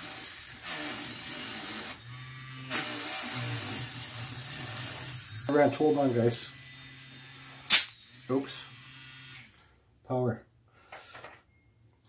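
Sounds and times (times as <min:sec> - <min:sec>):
rotary tool motor hum: 0:00.0 - 0:05.5, 0:06.4 - 0:09.6.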